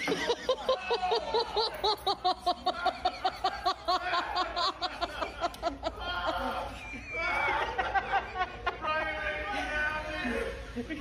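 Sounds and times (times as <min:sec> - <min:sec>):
person laughing hard: 0:00.0 - 0:09.0.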